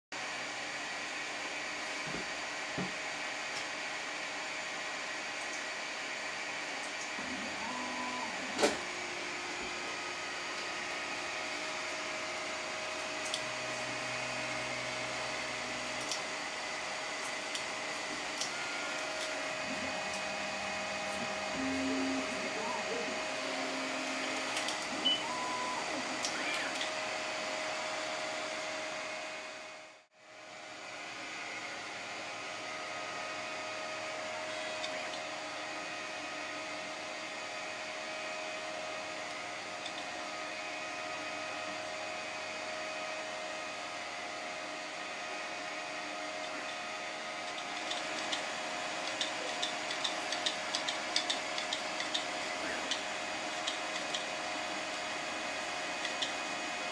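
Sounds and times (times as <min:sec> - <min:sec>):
fan whir: 0:00.2 - 0:56.9
motor whines: 0:07.0 - 0:29.4.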